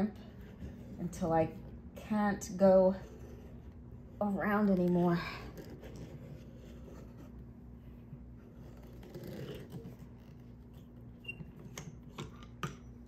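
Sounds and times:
crimper scraping on jar lid: 8.4 - 10.5.

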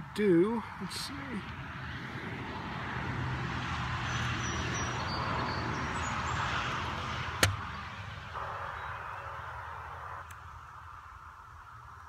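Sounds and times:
low drone: 6.8 - 12.0.

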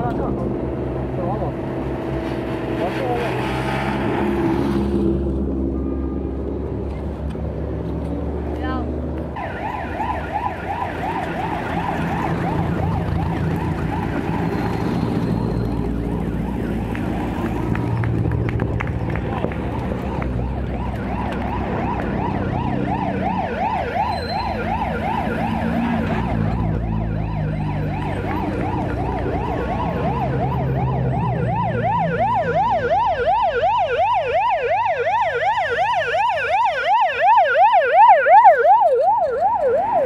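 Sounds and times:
cars driving past: 0.0 - 40.0
siren wailing: 9.4 - 18.2, 20.0 - 40.0.

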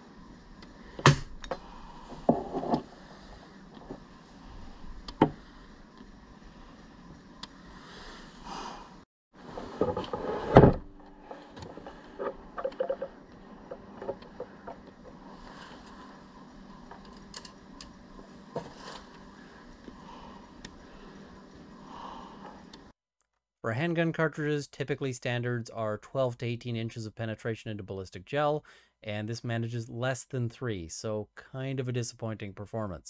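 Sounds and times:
clatter of knocks and rubbing: 2.1 - 2.9.

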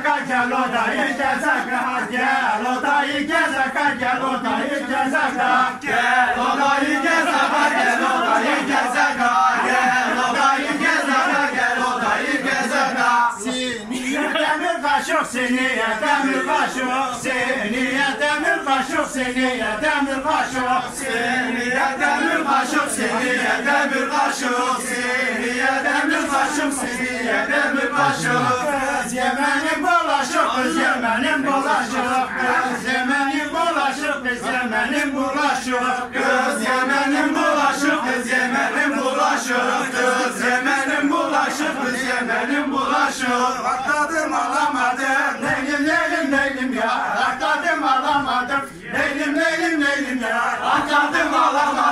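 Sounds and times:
men singing in unison: 0.0 - 51.9.

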